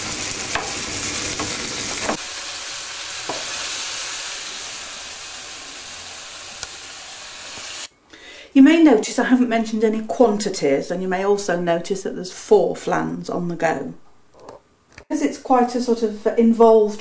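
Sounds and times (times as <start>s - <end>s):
mushrooms sizzling in a frying pan: 0.0s - 7.9s.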